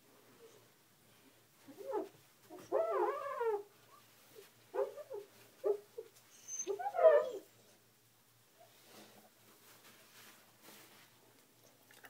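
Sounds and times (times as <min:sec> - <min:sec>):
dog whining: 0:01.7 - 0:03.7, 0:04.8 - 0:07.6.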